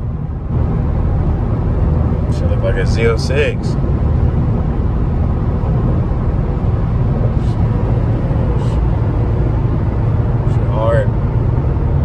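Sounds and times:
road and engine noise in car cabin: 0.0s - 12.0s.

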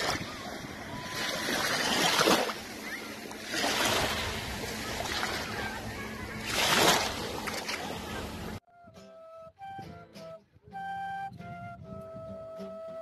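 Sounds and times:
small waves washing over sand: 0.0s - 8.6s
flute melody: 8.6s - 13.0s.

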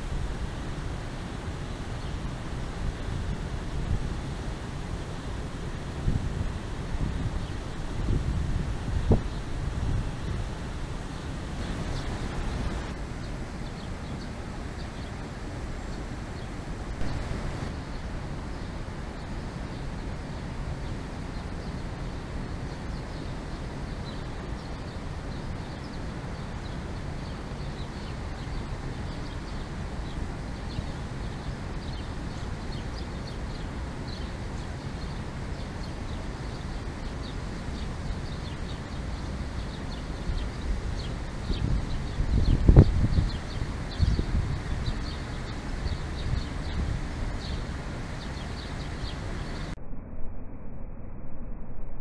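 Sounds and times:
steady low rumble: 0.0s - 31.2s, 45.7s - 52.0s
sparrows chirping: 11.1s - 20.2s, 22.7s - 49.7s.

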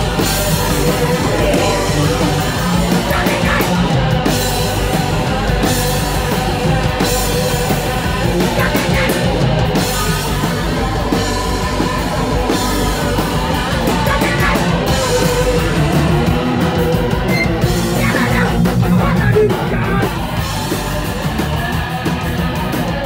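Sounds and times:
bass guitar: 0.0s - 23.0s
drum kit pounding: 0.0s - 23.0s
electric guitar: 0.0s - 23.0s.

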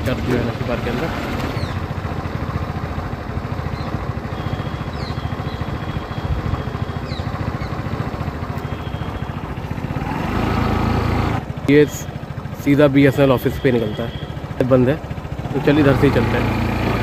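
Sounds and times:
small engine puttering: 0.0s - 17.0s
faint bird chirps: 3.7s - 7.9s.

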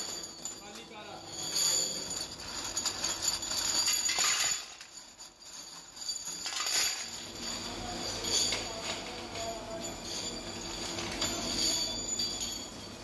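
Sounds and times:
metal parts clinking: 0.0s - 13.0s
metal parts dropped into metal bowl: 0.0s - 13.0s.

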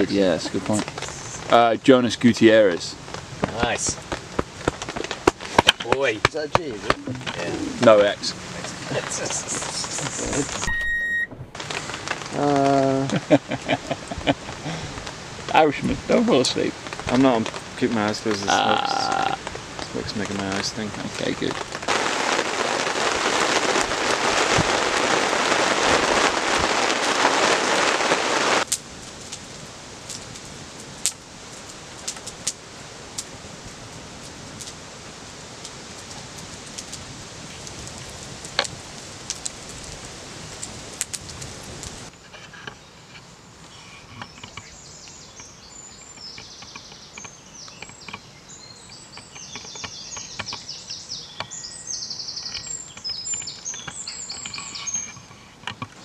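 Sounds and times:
loud steady hiss: 0.0s - 10.7s, 11.5s - 56.0s
campfire crackling and popping: 0.0s - 56.0s
birds chirping: 42.1s - 56.0s.

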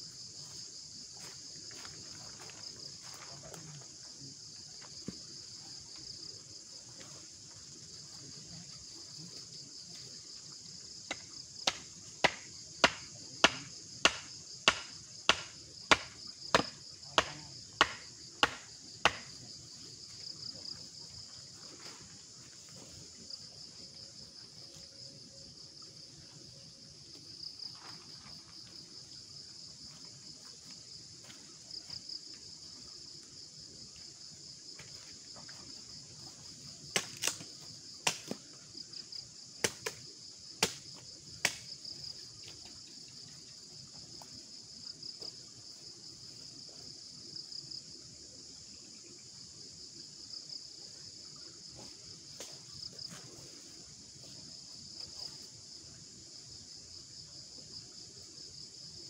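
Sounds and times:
crickets chirping: 0.0s - 59.0s
sharp knocks: 11.1s - 19.3s.

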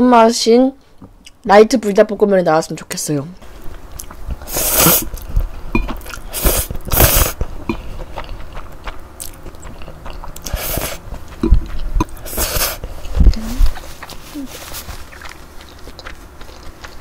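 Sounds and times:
chewing and wet mouth sounds: 3.5s - 17.0s
person slurping noodles: 4.4s - 5.2s, 6.0s - 7.4s, 10.2s - 11.0s, 12.0s - 12.8s.

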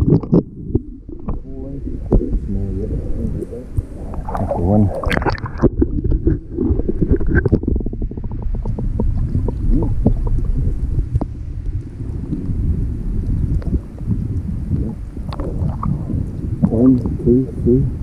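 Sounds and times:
muffled water sloshing and gurgling: 0.0s - 18.0s
fish splashing: 3.2s - 11.4s.

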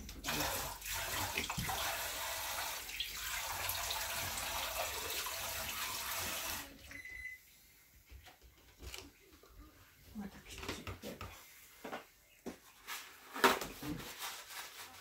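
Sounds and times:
tap water running into sink: 0.0s - 6.7s.

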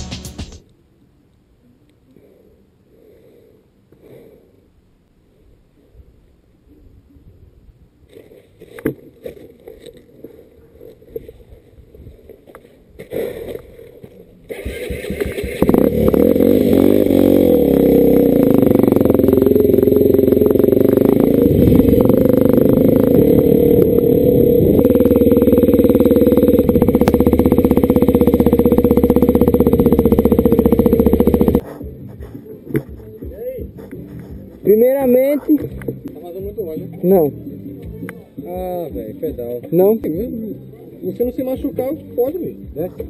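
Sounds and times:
dirt bike engine running: 14.5s - 33.0s.

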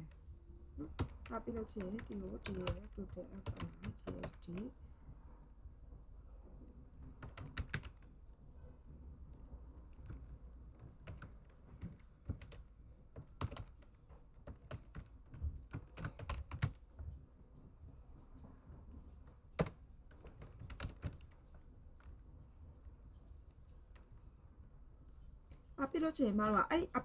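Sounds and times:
faint low hum: 0.0s - 27.0s
computer keyboard typing: 0.8s - 4.7s, 7.1s - 8.1s, 9.8s - 16.9s, 19.6s - 22.2s.

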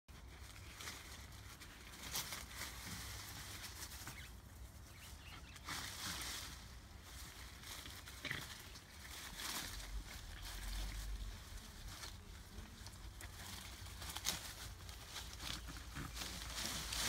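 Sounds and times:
dry leaves rustling: 0.1s - 17.0s.

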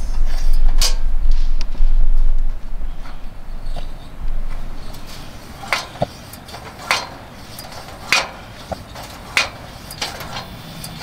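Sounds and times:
lantern flame hiss: 0.0s - 11.0s
sharp metallic clicks: 3.1s - 11.0s.

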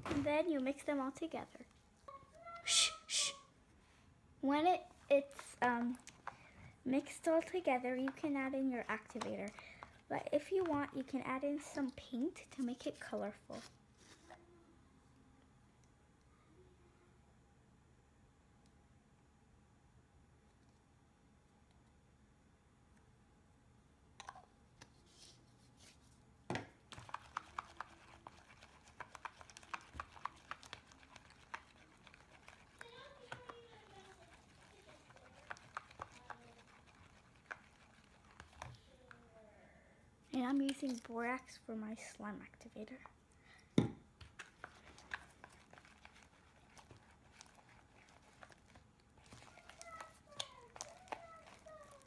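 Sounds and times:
spatula stirring sticky slime: 4.4s - 14.4s, 24.2s - 39.3s, 40.2s - 43.3s, 44.0s - 52.0s.

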